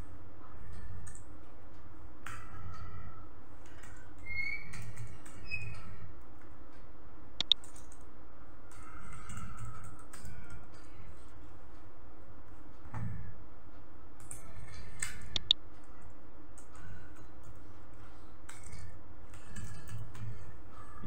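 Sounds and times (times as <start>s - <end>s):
laptop keyboard typing: 0.8s - 1.3s, 3.6s - 6.0s, 7.4s - 8.1s, 8.7s - 11.1s, 14.2s - 16.0s, 18.4s - 20.5s.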